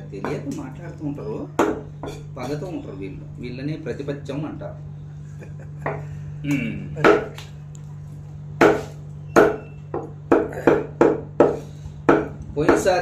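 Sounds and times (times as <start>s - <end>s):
steady low hum: 0.0s - 13.0s
cleaver chopping on wooden block: 1.6s - 2.2s, 8.6s - 13.0s.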